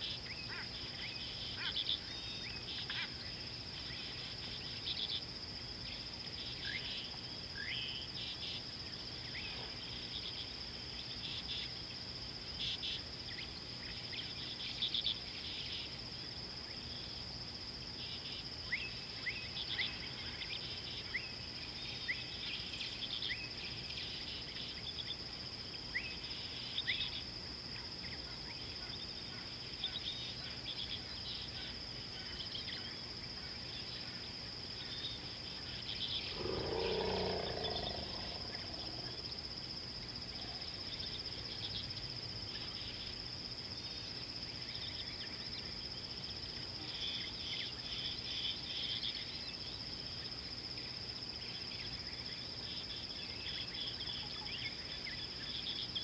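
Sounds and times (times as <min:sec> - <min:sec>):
high insect trill: 0:00.0 - 0:56.0
faint low hum: 0:34.8 - 0:44.1
rising bird chirps: 0:36.3 - 0:39.2.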